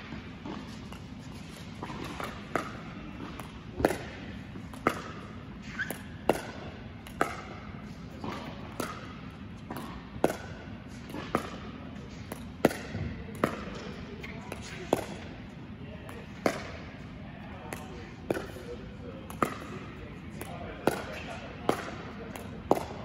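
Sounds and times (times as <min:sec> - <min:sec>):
ball bouncing: 0:00.1 - 0:15.2, 0:16.1 - 0:16.8, 0:19.3 - 0:23.0
paddles hitting plastic ball: 0:00.4 - 0:15.3, 0:17.7 - 0:23.0.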